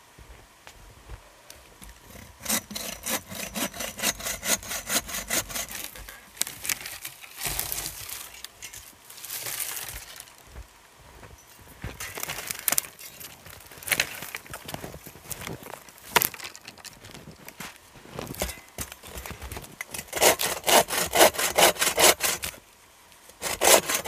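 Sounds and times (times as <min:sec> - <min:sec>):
hand saw cutting wood: 0:02.1 - 0:06.1, 0:19.9 - 0:22.6, 0:23.4 - 0:24.0.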